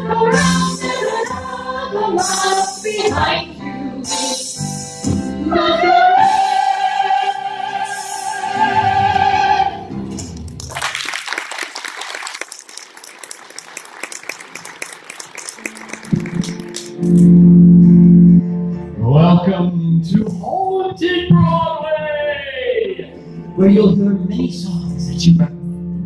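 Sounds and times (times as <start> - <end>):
group singing high note: 0.0 - 9.9
audience applause: 10.5 - 17.2.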